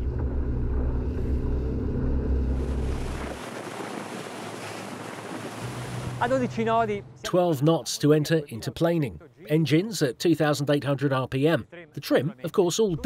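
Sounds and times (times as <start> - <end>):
water rushing along hull: 0.0 - 6.9
outboard engines droning: 0.0 - 7.2.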